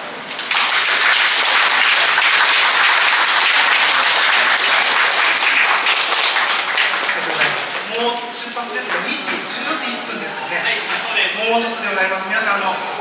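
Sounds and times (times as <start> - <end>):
audience applause: 0.3 - 8.2.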